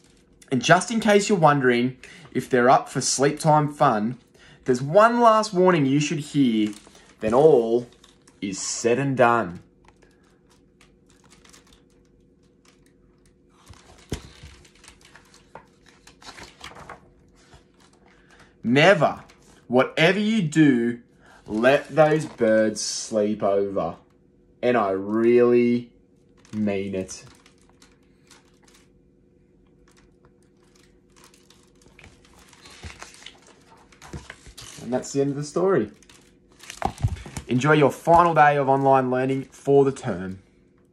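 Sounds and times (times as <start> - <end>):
faint steady hum: 0.0 - 40.9
book pages turning: 4.7 - 19.7, 21.4 - 23.2, 26.3 - 29.0, 29.6 - 40.4.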